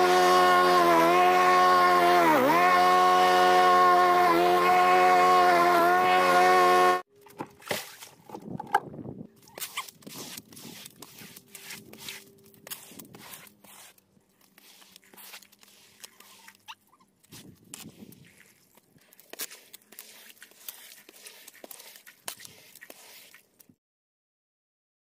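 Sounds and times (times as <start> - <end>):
rustling and scraping of debris: 7.1 - 23.8.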